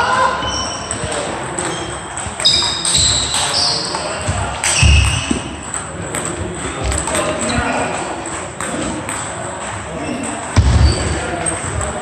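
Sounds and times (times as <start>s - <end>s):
high-pitched shoe squeaks: 0.4s - 5.6s
sharp ball hits: 4.3s - 6.3s.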